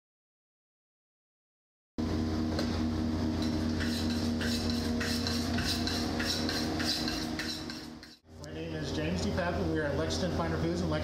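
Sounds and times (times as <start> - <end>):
steady low hum: 2.0 - 11.0
scraping on steel sink: 3.4 - 8.2.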